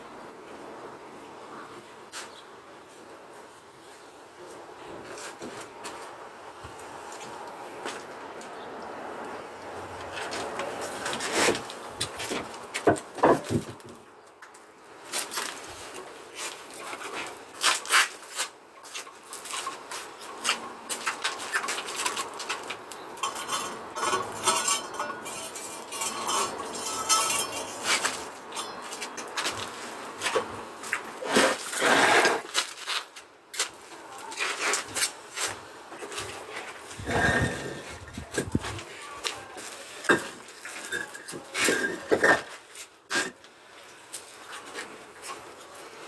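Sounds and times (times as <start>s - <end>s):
scraping on concrete blocks: 10.0s - 14.0s, 15.1s - 45.5s
metallic clinks and knocks: 23.2s - 28.8s.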